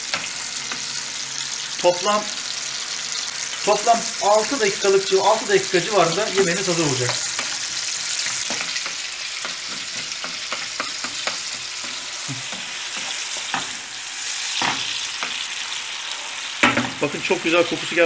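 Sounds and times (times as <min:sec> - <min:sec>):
tomatoes sizzling in oil: 0:00.0 - 0:18.0
wooden spoon scraping pan: 0:06.2 - 0:16.5.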